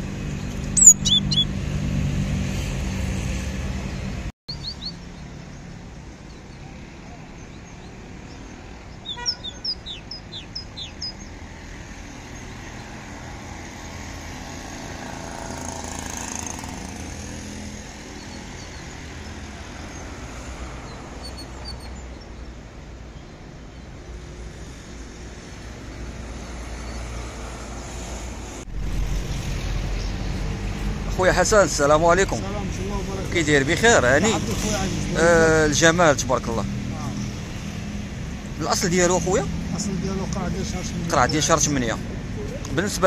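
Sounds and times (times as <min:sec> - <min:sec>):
outdoor background rumble: 0:00.0 - 0:23.0, 0:23.7 - 0:43.0
songbird chirping: 0:00.3 - 0:01.6, 0:04.5 - 0:13.1.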